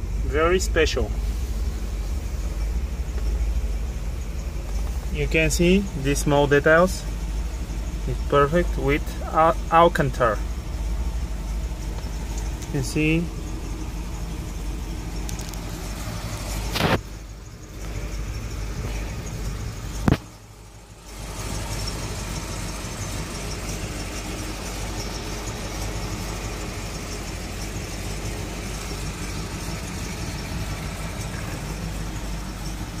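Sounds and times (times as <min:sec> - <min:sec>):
car engine idling: 0:00.0 - 0:33.0.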